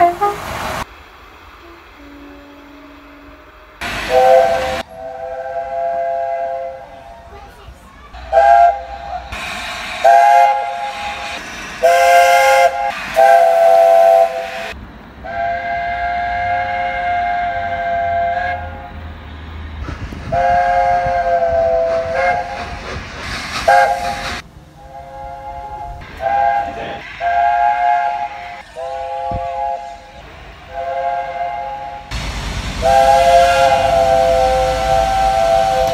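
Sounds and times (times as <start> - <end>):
train horn blasts: 0.0 - 0.5, 1.6 - 7.1, 8.2 - 9.4, 10.0 - 19.0, 20.3 - 22.8, 23.7 - 24.2, 24.8 - 32.1, 32.8 - 35.9
train rumble: 0.0 - 35.9.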